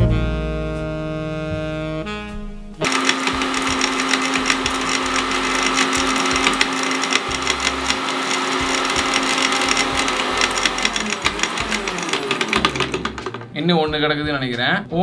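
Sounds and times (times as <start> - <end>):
mixer grinder motor whine: 2.8 - 13.6.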